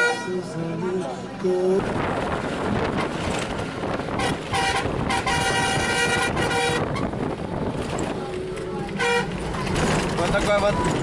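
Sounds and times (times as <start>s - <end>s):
bus horn honking: 0.0s - 1.2s, 4.0s - 7.3s, 8.8s - 9.9s
bus engine and road noise: 0.0s - 11.0s.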